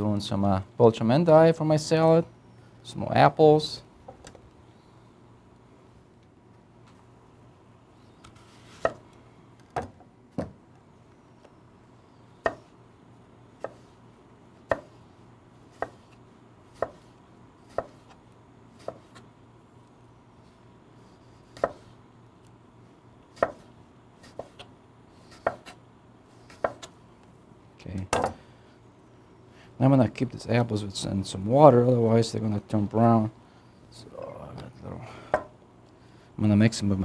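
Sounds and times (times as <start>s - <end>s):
knife slicing apple: 14.6s - 14.9s, 15.7s - 18.2s, 18.8s - 19.3s, 21.0s - 21.9s, 23.3s - 25.8s, 26.4s - 27.0s.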